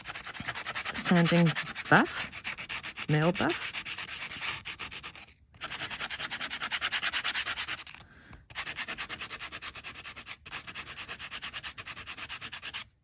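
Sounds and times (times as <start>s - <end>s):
nail buff rubbing metal tape: 0.0s - 12.9s.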